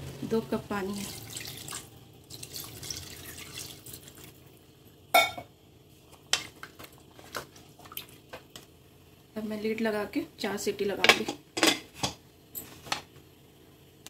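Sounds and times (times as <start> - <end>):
liquid sloshing in a pot: 1.0 - 4.6.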